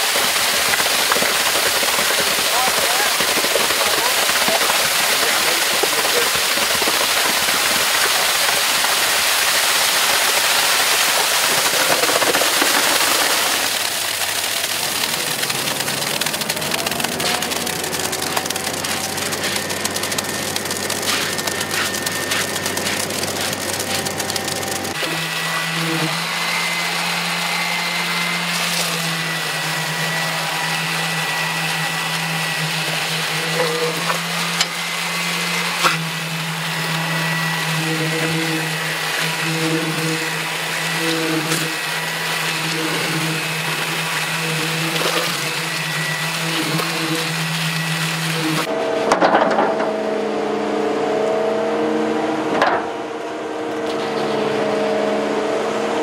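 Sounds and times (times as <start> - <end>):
wet concrete pouring down chute: 0.0 - 48.7
higher motor hum: 1.1 - 56.0
low engine hum: 13.5 - 35.0.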